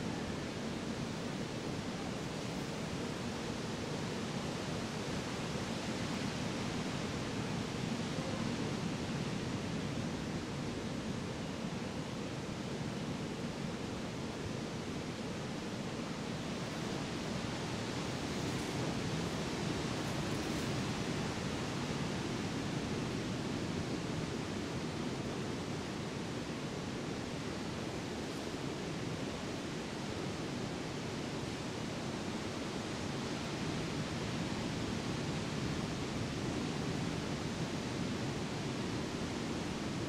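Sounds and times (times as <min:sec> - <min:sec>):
steady rushing noise: 0:14.7 - 0:40.0.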